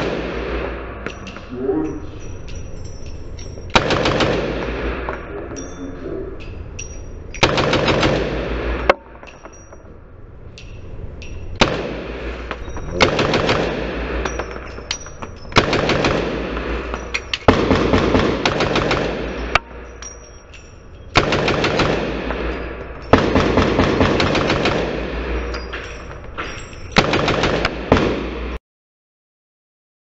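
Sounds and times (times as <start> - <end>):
rifle bursts of rapid gunfire: 3.8 - 4.8, 7.4 - 8.5, 13.0 - 14.1, 15.6 - 16.7, 17.5 - 19.4, 21.2 - 22.3, 23.2 - 25.3, 27.0 - 28.2.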